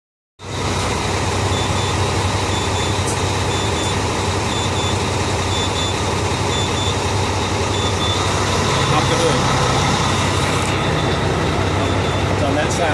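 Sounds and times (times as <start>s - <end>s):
diesel engine idling: 0.4s - 12.9s
faint high beep: 1.5s - 4.9s, 5.5s - 9.4s.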